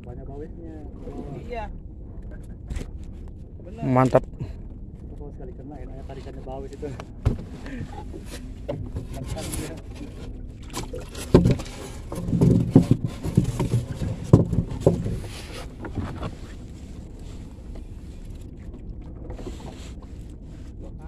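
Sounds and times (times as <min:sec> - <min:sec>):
knocks against wooden hull: 0:07.0 - 0:16.6.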